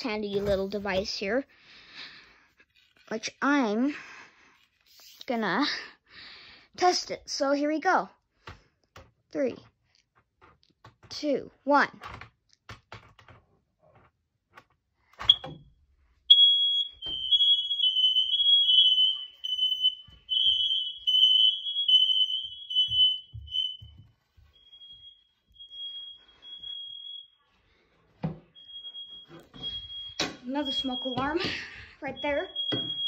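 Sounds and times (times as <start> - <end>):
smoke alarms beeping: 15.2 - 15.7, 16.3 - 33.0.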